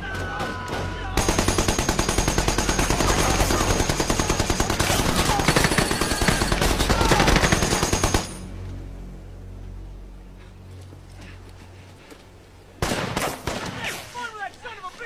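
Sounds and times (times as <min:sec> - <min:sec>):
machine gun automatic fire: 0:01.2 - 0:08.4.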